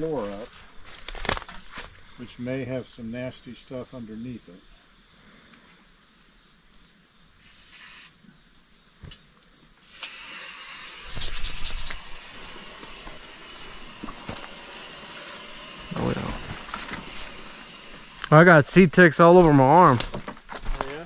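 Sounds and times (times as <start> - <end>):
insects trilling: 0.0 - 21.0
rushing hiss: 7.3 - 8.3, 9.8 - 20.1.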